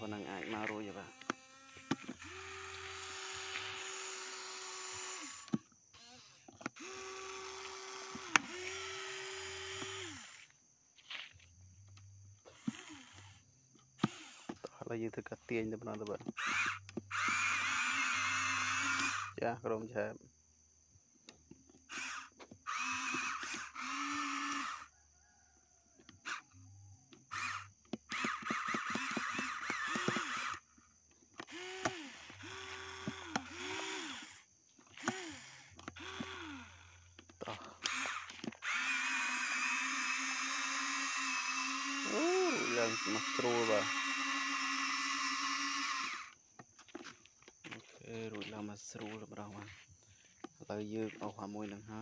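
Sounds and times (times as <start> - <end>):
small electric motors whining: 0.0 - 14.8, 15.8 - 19.4, 21.3 - 25.0, 26.0 - 47.8
toy excavator clicks and knocks: 0.4 - 10.5, 14.0 - 14.7, 15.9 - 19.3, 21.3 - 24.9, 27.1 - 30.6, 31.3 - 47.1.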